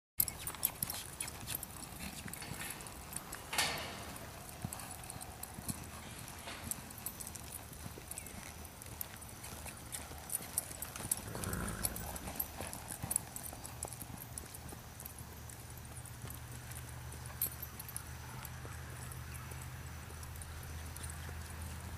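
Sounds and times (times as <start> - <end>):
hoofbeats on sand: 0.2 - 21.9.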